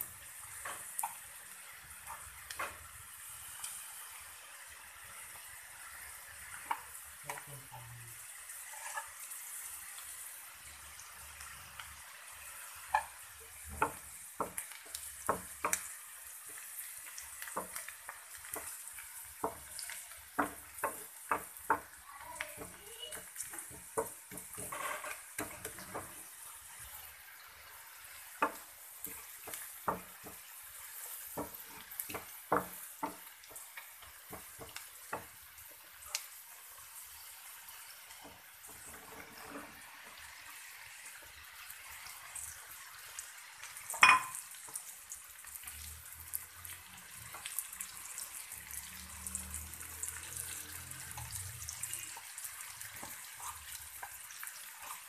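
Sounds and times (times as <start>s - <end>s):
onions sizzling in oil: 0.0s - 55.0s
wooden spatula scraping a pan: 8.4s - 9.5s, 22.6s - 26.9s, 27.9s - 35.4s, 37.7s - 40.6s, 50.4s - 55.0s.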